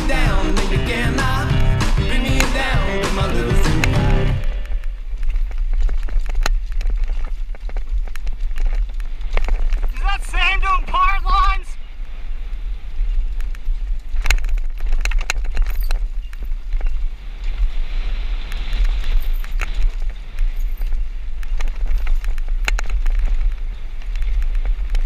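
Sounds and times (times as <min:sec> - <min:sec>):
bike rattling and knocking: 0:00.0 - 0:10.1, 0:13.0 - 0:17.7, 0:18.5 - 0:25.0
tyres rolling over dirt and stones: 0:00.0 - 0:11.6
wind rumble on microphone: 0:00.0 - 0:25.0.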